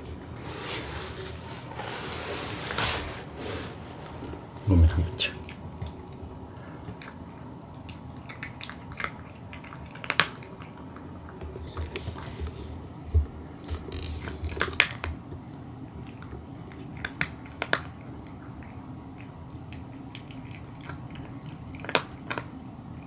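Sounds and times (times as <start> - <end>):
kibble clicking against bowl: 7.8 - 12.0
cat crunching dry kibble: 13.6 - 22.6.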